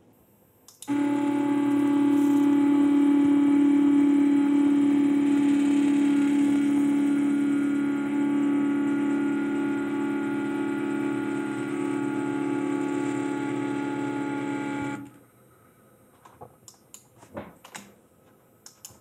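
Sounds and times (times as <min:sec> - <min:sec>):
stepper motors whining: 0:00.9 - 0:15.1.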